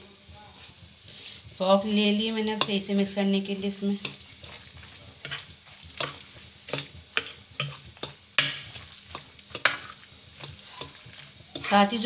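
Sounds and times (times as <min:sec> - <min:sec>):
fork stirring wet mixture: 0:02.4 - 0:03.0, 0:04.0 - 0:12.0
fork clicking on bowl: 0:05.2 - 0:11.8.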